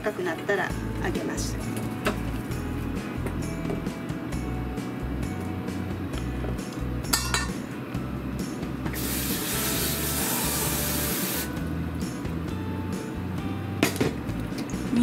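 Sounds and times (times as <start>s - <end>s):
tap water running into tray: 8.9s - 11.5s.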